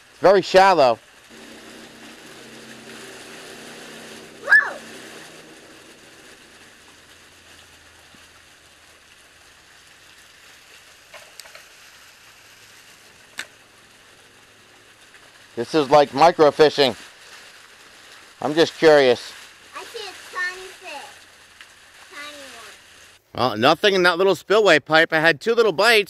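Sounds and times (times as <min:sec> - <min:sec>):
small waterfall spilling: 0:00.0 - 0:23.2
short high cry: 0:04.4 - 0:04.9.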